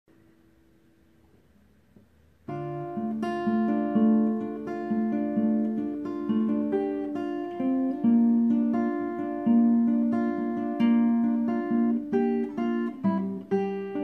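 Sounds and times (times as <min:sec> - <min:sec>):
fingerstyle acoustic guitar: 0:01.2 - 0:14.0.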